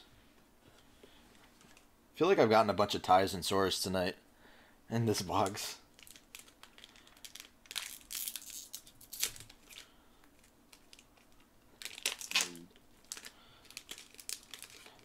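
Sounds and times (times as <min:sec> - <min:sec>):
wrapper tearing and crinkling: 0:05.9 - 0:15.0.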